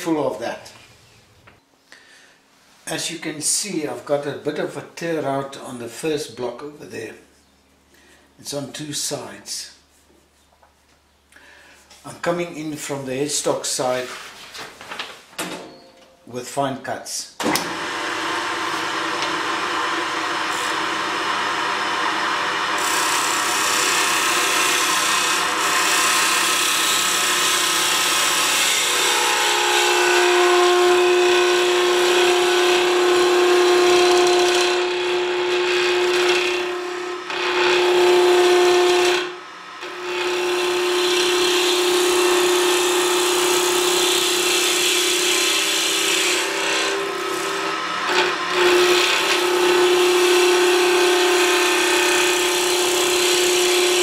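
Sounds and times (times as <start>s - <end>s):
wood lathe gouge shaving: 17.6s - 54.0s.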